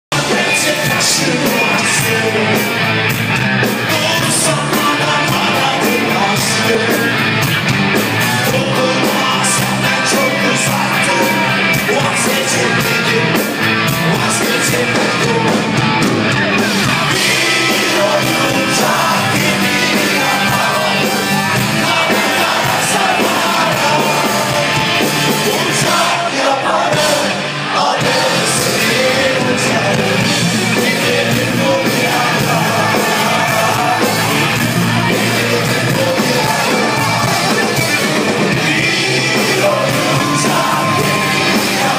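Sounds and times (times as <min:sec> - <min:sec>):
man singing into microphone: 0:00.1 - 0:02.8, 0:03.8 - 0:07.2, 0:08.2 - 0:15.7, 0:17.1 - 0:24.8, 0:25.4 - 0:41.9
live rock band playing: 0:00.1 - 0:41.9.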